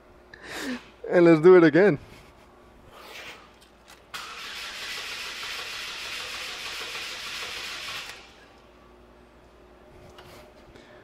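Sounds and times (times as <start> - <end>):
car engine cranking and starting: 4.2 - 8.2.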